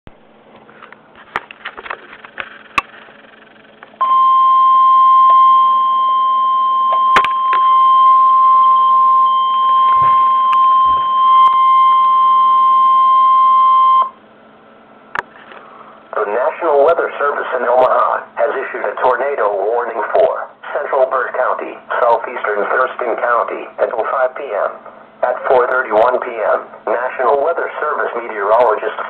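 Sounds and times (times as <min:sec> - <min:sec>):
steady warning alarm tone: 0:03.5 - 0:14.2.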